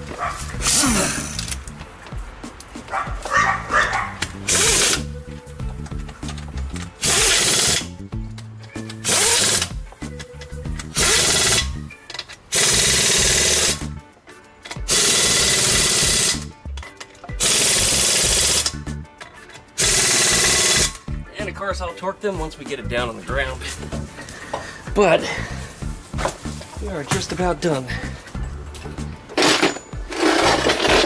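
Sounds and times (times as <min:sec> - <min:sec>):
impact wrench bursts: 0:04.4 - 0:05.1, 0:07.0 - 0:07.9, 0:08.8 - 0:09.8, 0:10.8 - 0:11.8, 0:12.5 - 0:13.8, 0:14.9 - 0:16.5, 0:17.4 - 0:18.8, 0:19.8 - 0:21.0, 0:29.4 - 0:31.0.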